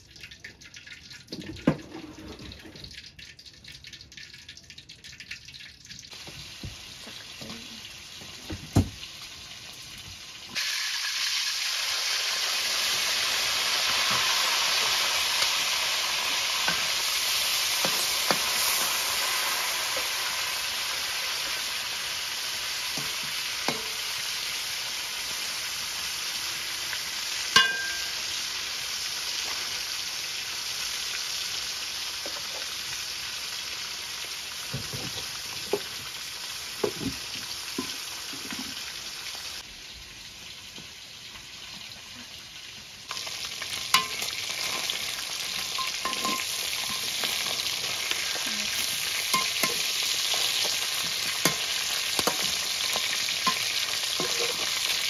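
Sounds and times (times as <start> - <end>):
food sizzling in a pan: 6.1 - 55.0
utensil clinking against pan: 27.6 - 28.2, 44.0 - 44.9, 45.7 - 47.4, 48.8 - 50.0.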